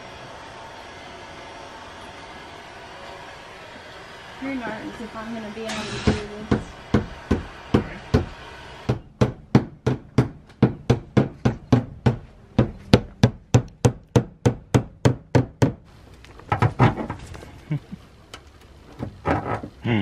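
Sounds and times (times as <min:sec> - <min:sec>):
hammer striking sheet steel: 0:05.7 - 0:14.9.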